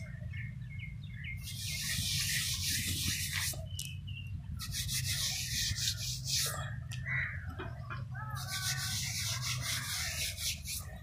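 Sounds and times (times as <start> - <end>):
hand scrubbing stone: 1.4 - 3.6, 4.6 - 6.5, 8.4 - 11.0.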